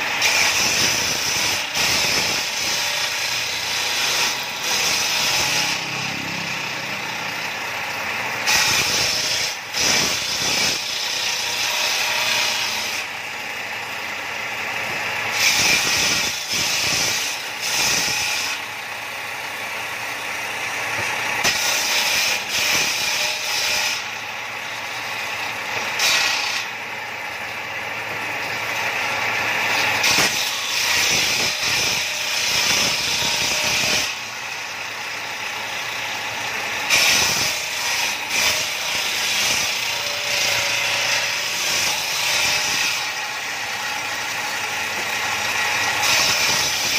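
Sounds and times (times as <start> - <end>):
circular saw cutting wood: 0.0 - 46.9.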